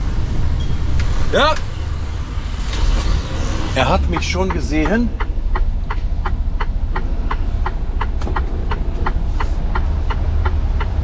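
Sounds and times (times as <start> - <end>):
diesel engine rumble: 0.0 - 11.0
turn signal ticking: 3.8 - 11.0.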